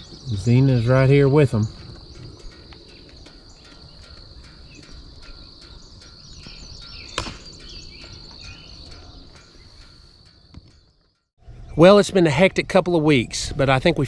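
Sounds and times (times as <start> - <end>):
insects trilling: 0.0 - 14.0.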